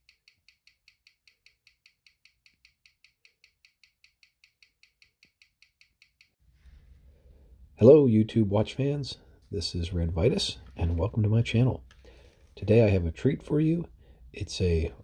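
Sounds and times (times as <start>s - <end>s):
pocket watch ticking: 0.0s - 6.4s.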